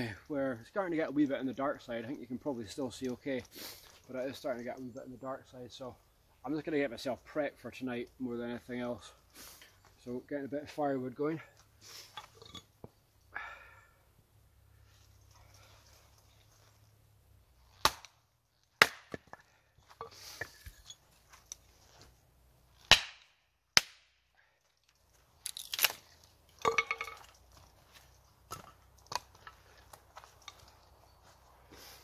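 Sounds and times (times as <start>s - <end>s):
axe chopping firewood: 17.7s - 20.6s, 22.8s - 24.2s.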